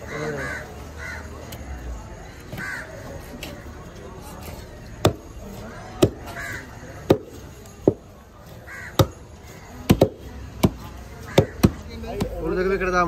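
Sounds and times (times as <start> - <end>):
cleaver chopping on wooden block: 5.0 - 5.3, 6.0 - 6.4, 7.0 - 8.0, 8.9 - 9.2, 9.8 - 12.4.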